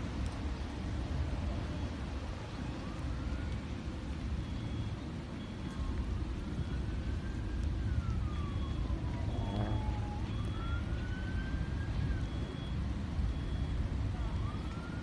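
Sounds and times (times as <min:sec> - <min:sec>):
siren wailing: 0:02.6 - 0:15.0.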